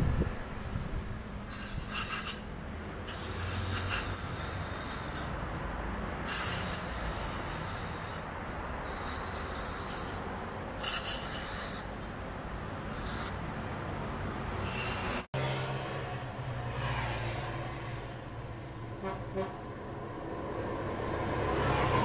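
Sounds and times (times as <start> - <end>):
aerosol spray hissing: 6.3 - 8.2.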